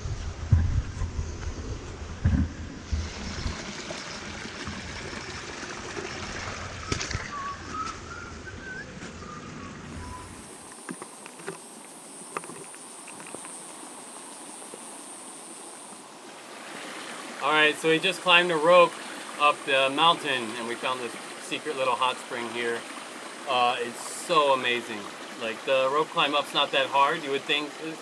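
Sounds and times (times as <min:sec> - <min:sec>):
wind on microphone: 0:00.0 - 0:05.3
water trickling: 0:02.2 - 0:08.2, 0:09.9 - 0:28.0
short wavering call: 0:07.2 - 0:10.5
high insect drone: 0:10.0 - 0:28.0.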